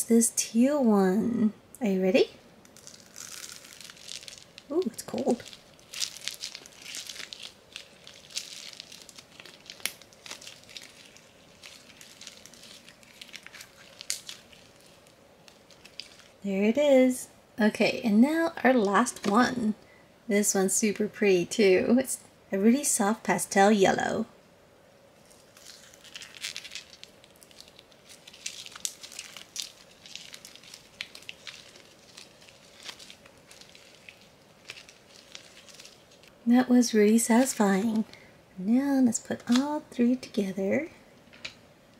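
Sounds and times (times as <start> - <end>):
slime squeezed by hand: 2.8 - 16.4.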